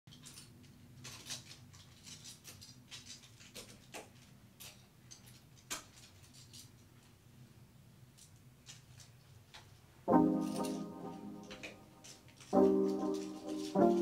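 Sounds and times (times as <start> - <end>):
hangers clicking on metal rail: 10.4 - 14.0.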